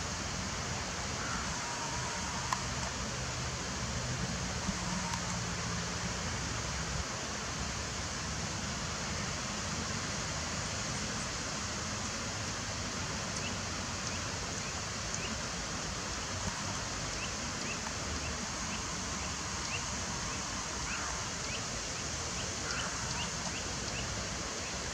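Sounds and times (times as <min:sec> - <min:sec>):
rushing outdoor background noise: 0:00.0 - 0:24.9.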